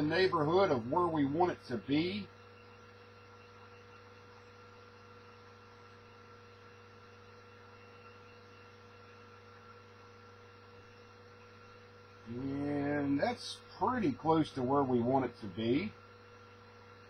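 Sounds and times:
low electrical hum: 0.0 - 17.0
faint steady high tones: 10.8 - 16.0.

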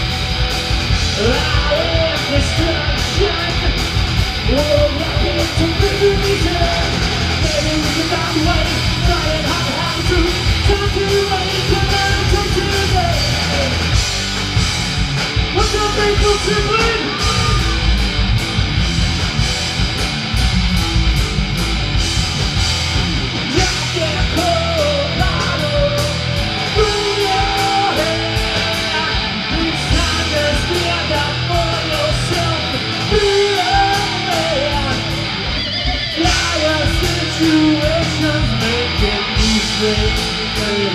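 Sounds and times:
hard rock band playing live: 0.0 - 40.9
person singing: 1.1 - 13.9, 15.5 - 18.0, 23.5 - 40.9.

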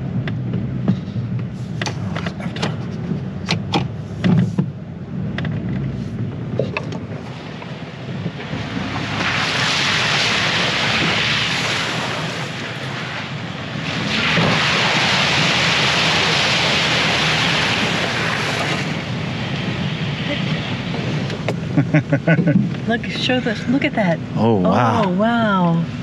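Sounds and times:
tyres splashing through puddles: 6.5 - 25.4.

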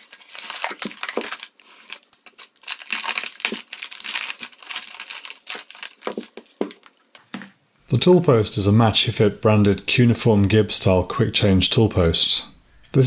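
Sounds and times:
plastic bag crinkling: 0.0 - 7.2.

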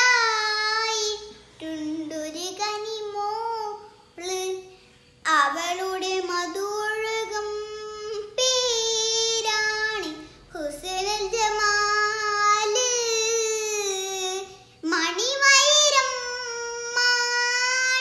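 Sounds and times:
girl singing unaccompanied: 0.0 - 18.0
girl breathing: 10.1 - 10.6.

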